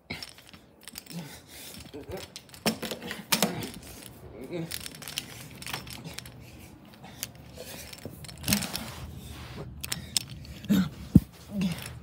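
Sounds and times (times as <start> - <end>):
clicks and rustling: 0.1 - 9.0.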